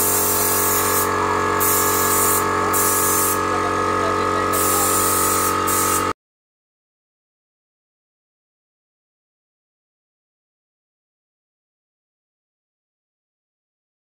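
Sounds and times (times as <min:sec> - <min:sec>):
spray gun hissing in bursts: 0:00.0 - 0:06.1
air compressor humming: 0:00.0 - 0:06.2.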